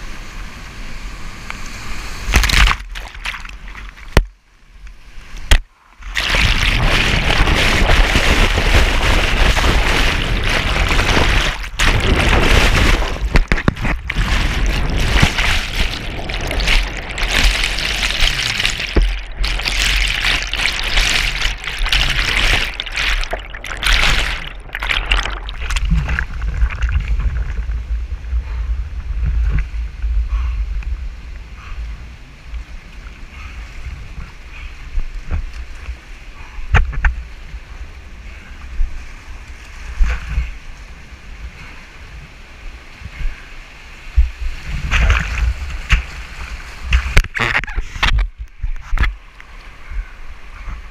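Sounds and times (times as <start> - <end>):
whitewater rushing and splashing: 1.0 - 4.2, 6.0 - 29.9
low underwater rumble: 6.2 - 34.2.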